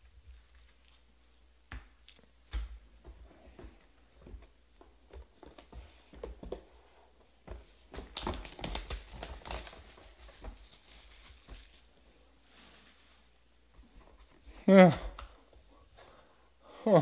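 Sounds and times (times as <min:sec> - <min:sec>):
cardboard crinkling and tearing: 0:08.0 - 0:11.9.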